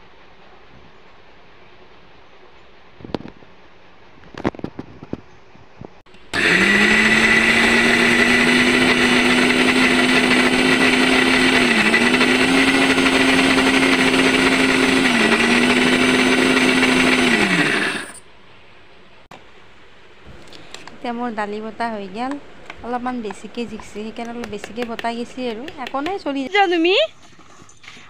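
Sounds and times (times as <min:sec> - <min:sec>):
mixer grinder motor grinding: 0:06.1 - 0:18.2.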